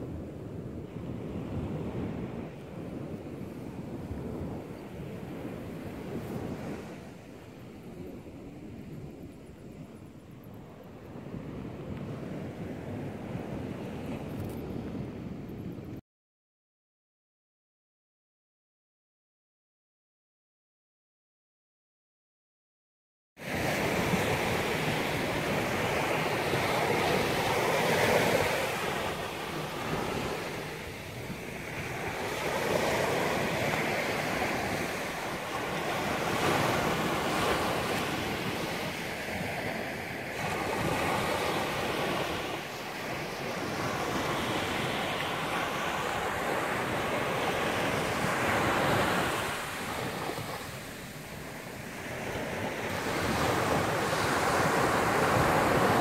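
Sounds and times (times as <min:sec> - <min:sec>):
wind buffeting microphone: 0:00.0 - 0:16.0, 0:23.4 - 0:56.0
ocean surf breaking: 0:23.4 - 0:56.0.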